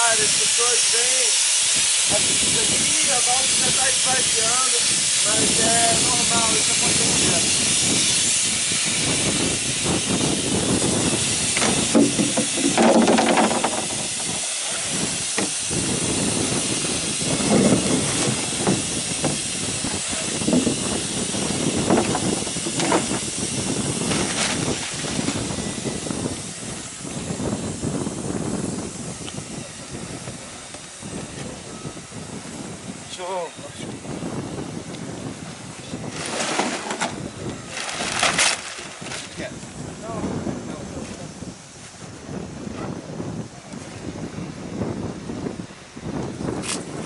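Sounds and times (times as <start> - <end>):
gas hissing from valves: 0.0 - 37.8
rustling and knocks: 11.6 - 14.5, 36.2 - 37.2.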